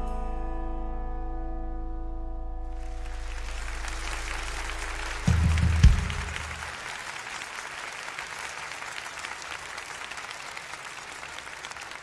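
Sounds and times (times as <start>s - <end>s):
audience applauding: 2.8s - 12.0s.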